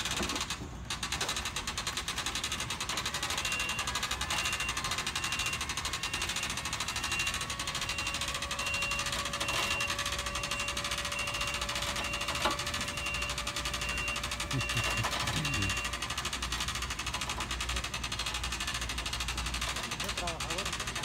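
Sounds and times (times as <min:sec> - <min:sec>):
hand-cranked winch clicking: 0:00.0 - 0:21.0.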